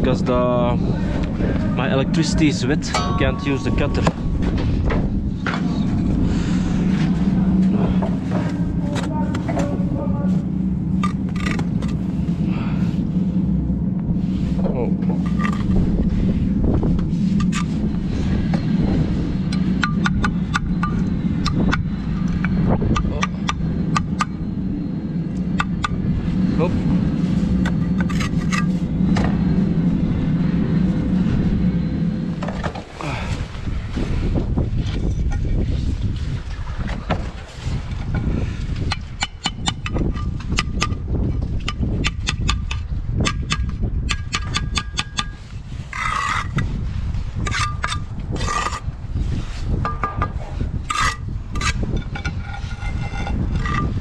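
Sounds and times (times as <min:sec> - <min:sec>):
steady low rumble: 0:00.0 - 0:54.0
trowel tapping bricks: 0:41.6 - 0:46.6
trowel scraping mortar: 0:45.2 - 0:46.6, 0:47.4 - 0:48.8, 0:50.8 - 0:54.0.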